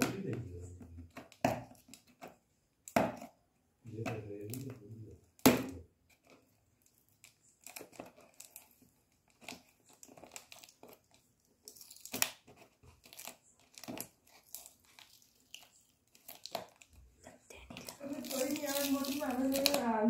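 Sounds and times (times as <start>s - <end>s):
packaging crinkling and tearing: 6.1s - 20.0s.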